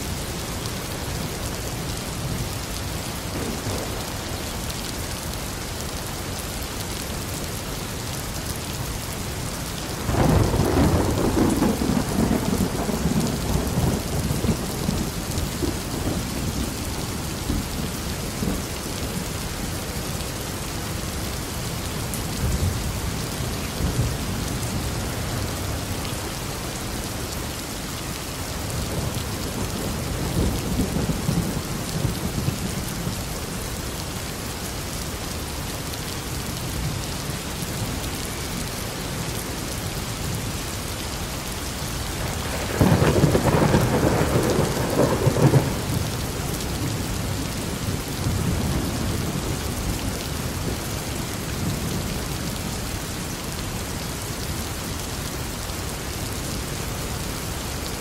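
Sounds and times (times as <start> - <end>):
steady rain: 0.0 - 58.0
thunder rumble: 10.0 - 18.7, 42.2 - 47.1.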